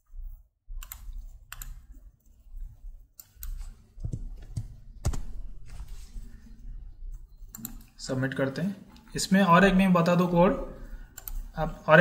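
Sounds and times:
computer mouse clicks: 0:00.8 - 0:02.3, 0:03.2 - 0:05.4, 0:07.1 - 0:08.0, 0:11.1 - 0:11.5.

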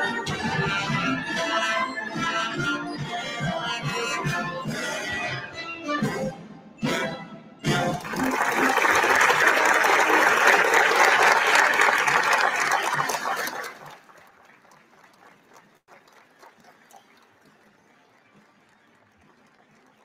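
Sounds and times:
crowd applause: 0:07.8 - 0:20.0.

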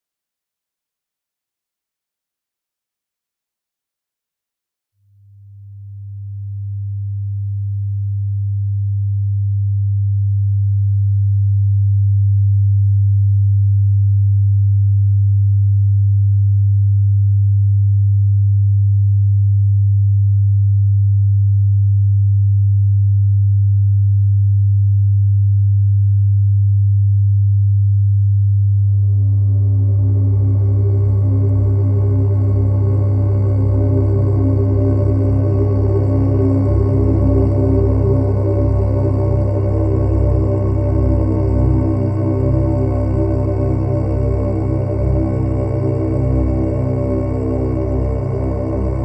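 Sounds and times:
deep steady drone tone: 0:05.5 - 0:11.8, 0:28.1 - 0:49.0.

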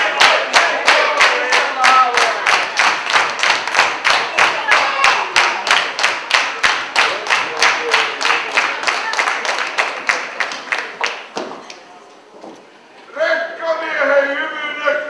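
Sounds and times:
crowd clapping in unison: 0:00.0 - 0:11.8
crowd voices: 0:00.0 - 0:15.0.

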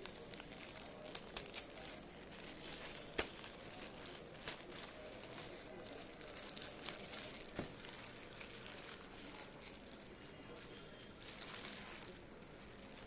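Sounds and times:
plastic bag crinkling: 0:00.0 - 0:13.0
plastic bag snap: 0:02.9 - 0:03.6, 0:06.9 - 0:07.9.

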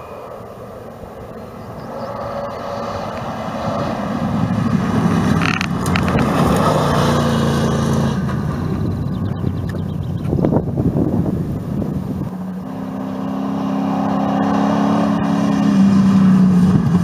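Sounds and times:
truck engine at full throttle: 0:00.0 - 0:17.0
sharp clatters: 0:05.4 - 0:06.7.

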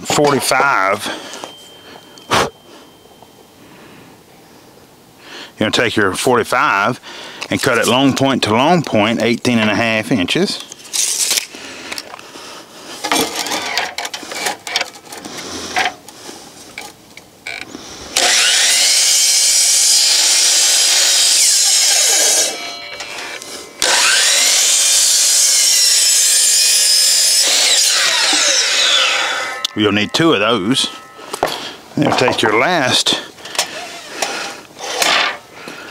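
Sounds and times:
tape measure and board handling: 0:10.6 - 0:12.1
miter saw cutting board: 0:18.1 - 0:35.4.

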